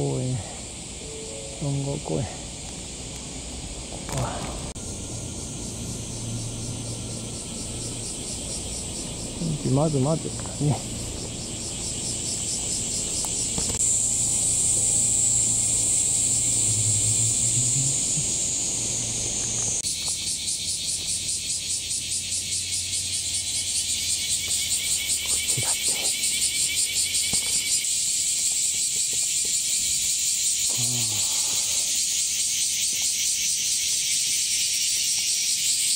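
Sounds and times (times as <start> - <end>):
cicadas buzzing: 0.0 - 35.9.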